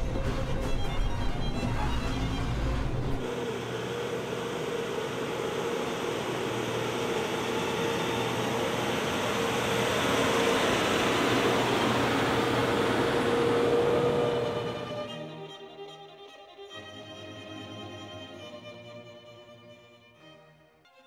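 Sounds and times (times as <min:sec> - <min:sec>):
diesel truck engine humming: 0:00.0 - 0:16.0.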